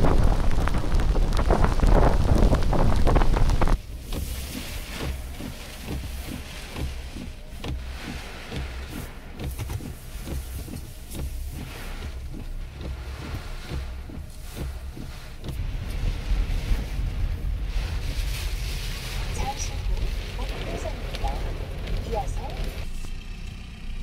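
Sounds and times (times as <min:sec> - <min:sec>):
surf crashing: 0:00.0 - 0:07.2, 0:14.6 - 0:22.8
car driving in heavy rain: 0:00.0 - 0:24.0.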